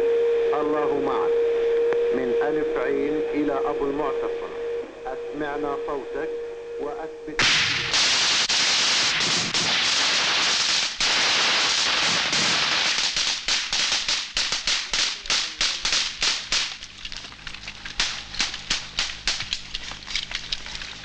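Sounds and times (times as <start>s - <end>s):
rifle gunfire: 7.4s - 16.9s, 18.0s - 19.6s.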